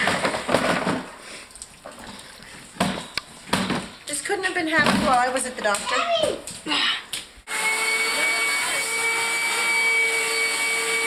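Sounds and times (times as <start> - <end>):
vacuum machine motor whine: 7.5 - 11.0.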